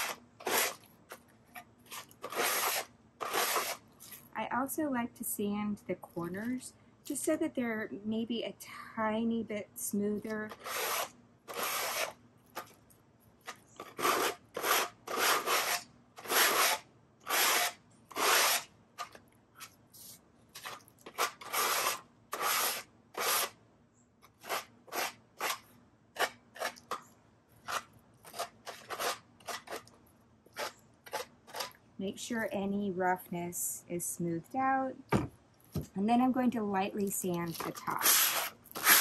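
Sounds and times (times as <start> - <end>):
sandpaper scratching wood: 0.0 - 0.8, 2.0 - 3.8, 10.5 - 12.1, 13.9 - 18.7, 21.2 - 23.6, 24.4 - 25.6, 27.7 - 29.8, 37.9 - 39.0.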